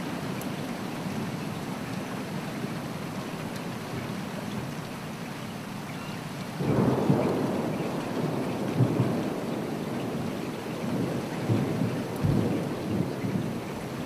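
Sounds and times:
steady rain: 0:00.0 - 0:14.0
thunder rumbling: 0:06.6 - 0:14.0.

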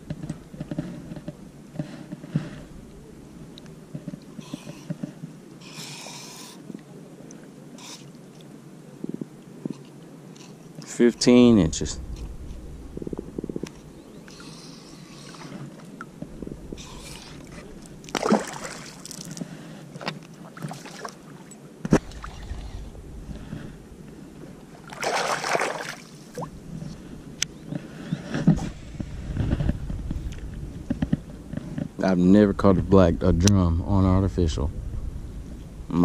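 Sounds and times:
shallow water sloshing and splashing: 0:12.1 - 0:27.1.

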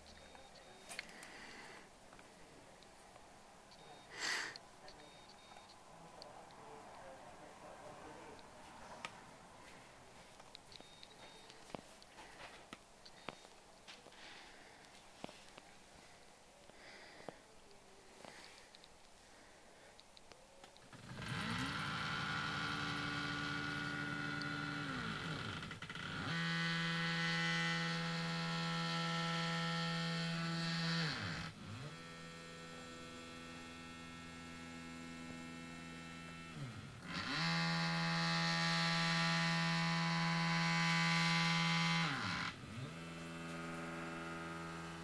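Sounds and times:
stepper motors whining: 0:20.8 - 0:45.0.

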